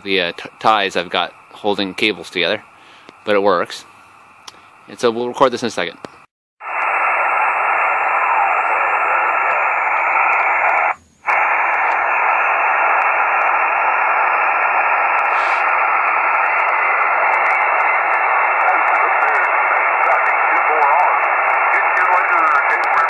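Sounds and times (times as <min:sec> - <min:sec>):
radio receiver hiss: 0:00.0 - 0:23.0.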